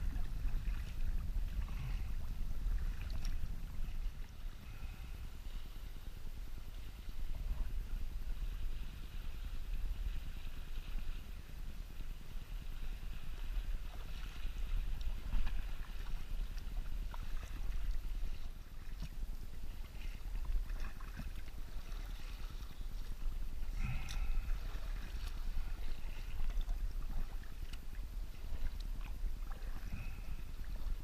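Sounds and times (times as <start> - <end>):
water splashing against kayak hull: 0.0 - 5.6, 12.5 - 31.0
wind rumble on microphone: 0.0 - 31.0.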